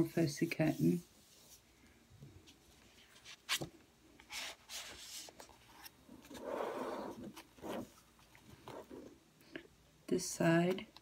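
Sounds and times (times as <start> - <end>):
paper page rustling: 2.6 - 6.4.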